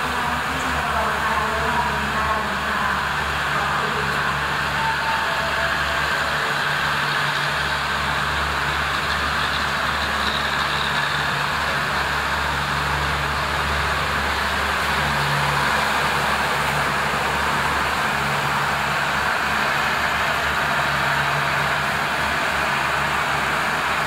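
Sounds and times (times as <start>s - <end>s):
diesel train engine drone: 0.0s - 24.0s.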